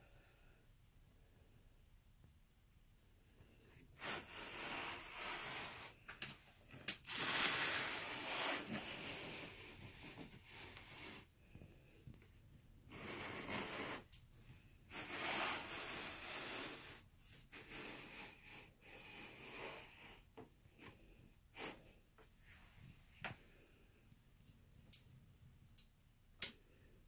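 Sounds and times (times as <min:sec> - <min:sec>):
faint rustling and rubbing: 0:03.4 - 0:23.7.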